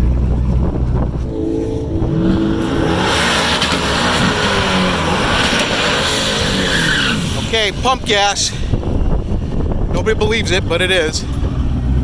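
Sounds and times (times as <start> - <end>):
car engine revving: 0.0 - 8.1
car accelerating hard: 1.2 - 7.8.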